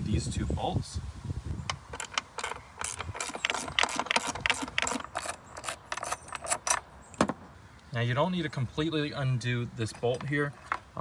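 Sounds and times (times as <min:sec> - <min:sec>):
ratchet wrench clicking: 0:01.7 - 0:06.8.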